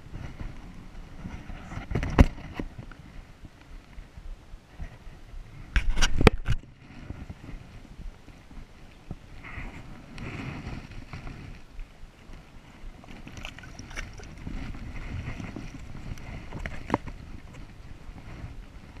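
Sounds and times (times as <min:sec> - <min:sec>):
water splashing and sloshing: 0:13.0 - 0:17.6.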